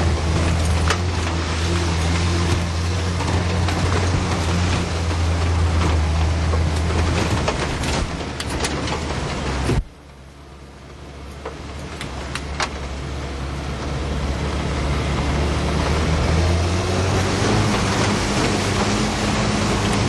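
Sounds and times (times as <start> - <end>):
vehicle engine humming: 0.0 - 20.0.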